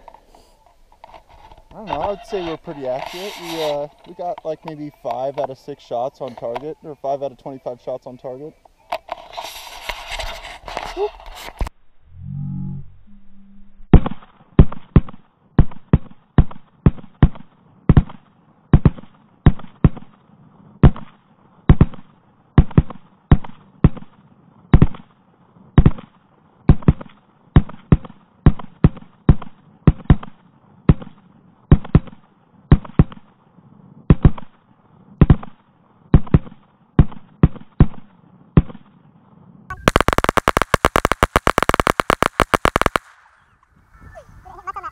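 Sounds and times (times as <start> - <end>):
pistol shots in slow motion: 13.9 - 20.2, 20.8 - 25.1, 25.8 - 33.3, 34.1 - 34.5, 35.2 - 39.0.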